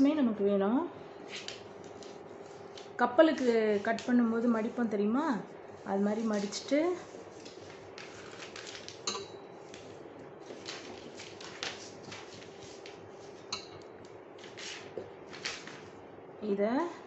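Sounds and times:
paper folding rustles and crackles: 1.3s - 4.8s, 6.0s - 13.5s, 14.4s - 16.0s
sharp paper clicks: 7.4s - 9.0s, 10.5s - 13.0s, 14.4s - 15.8s.

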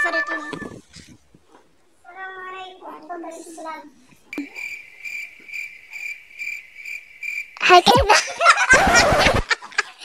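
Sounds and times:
cricket-like chirping trill: 4.3s - 8.5s
woman speaking: 7.6s - 8.3s
laughter: 7.9s - 10.0s.

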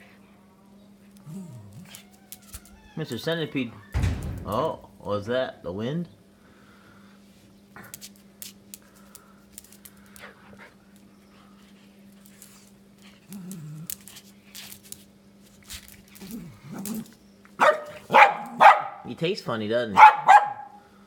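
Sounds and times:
dog whining grumbles: 1.1s - 3.8s, 13.0s - 14.3s, 16.1s - 18.7s
dog barking: 17.6s - 19.1s, 20.0s - 20.8s.

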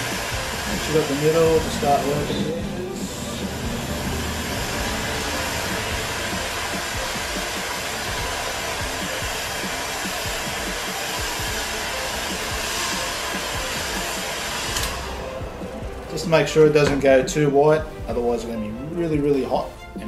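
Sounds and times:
heat gun blowing air: 0.0s - 15.8s.

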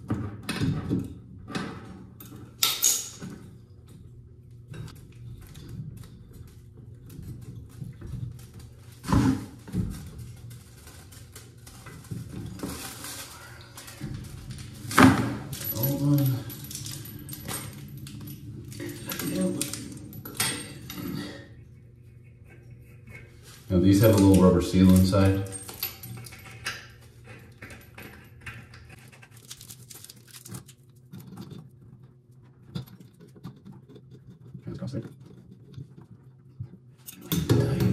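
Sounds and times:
small clicks and scrapes of pipe fitting: 21.0s - 23.6s.

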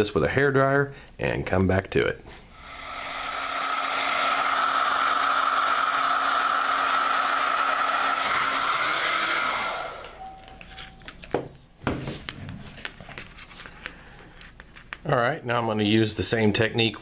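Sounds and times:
hair dryer running: 2.6s - 10.5s.

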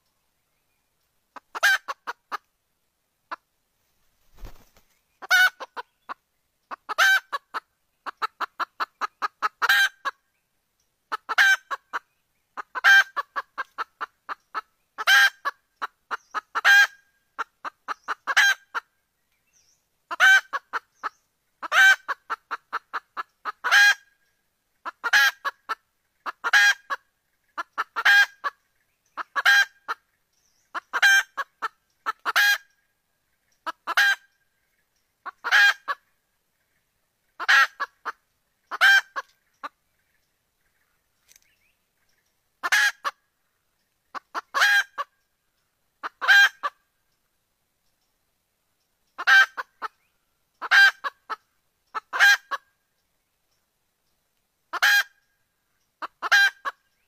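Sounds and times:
hen clucking and squawking: 1.3s - 2.5s, 4.3s - 10.2s, 11.1s - 19.0s, 20.1s - 32.8s, 33.4s - 34.4s, 35.2s - 36.2s, 37.3s - 40.8s, 42.6s - 43.3s, 44.1s - 45.2s, 46.0s - 46.9s, 49.2s - 52.8s, 54.7s - 55.2s, 56.0s - 56.8s.

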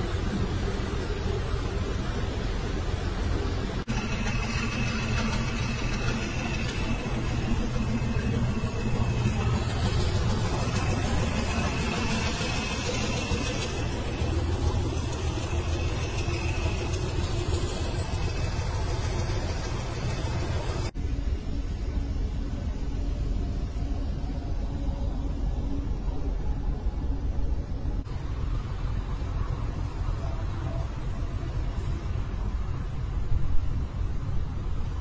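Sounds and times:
diesel truck engines running: 0.0s - 21.0s.

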